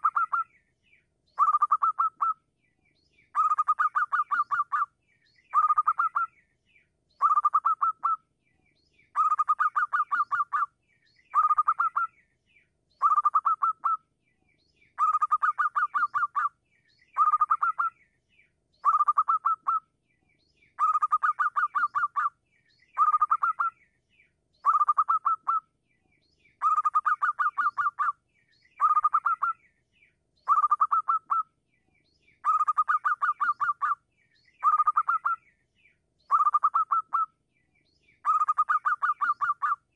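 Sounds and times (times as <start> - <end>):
dove cooing song: 0.0 - 0.5, 1.4 - 2.4, 3.3 - 4.9, 5.5 - 6.3, 7.2 - 8.2, 9.1 - 10.7, 11.3 - 12.1, 13.0 - 14.0, 15.0 - 16.5, 17.2 - 17.9, 18.8 - 19.9, 20.8 - 22.3, 23.0 - 23.8, 24.6 - 25.7, 26.6 - 28.2, 28.8 - 29.6, 30.4 - 31.5, 32.4 - 34.0, 34.6 - 35.4, 36.3 - 37.3, 38.2 - 39.8.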